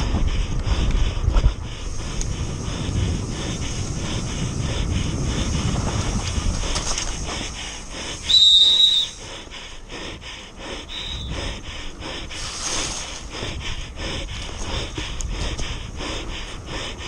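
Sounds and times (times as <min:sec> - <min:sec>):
heavy breathing: 0:00.0 - 0:17.0
tyre and wind rumble: 0:00.0 - 0:17.0
high brake squeal: 0:08.2 - 0:09.2.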